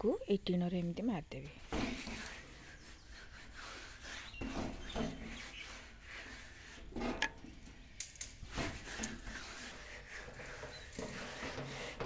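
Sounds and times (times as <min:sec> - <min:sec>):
hand smearing wet paste on tin: 0:01.8 - 0:07.2, 0:08.4 - 0:12.0.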